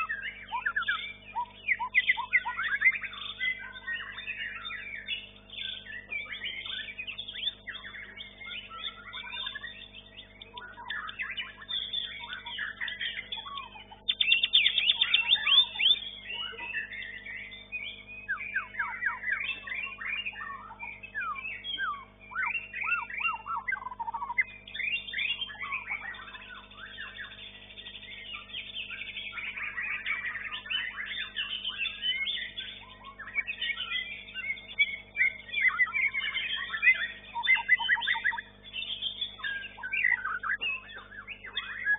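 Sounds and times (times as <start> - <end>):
faint steady hum: 0.0 - 41.9
songbird singing whistled trills: 0.0 - 41.9.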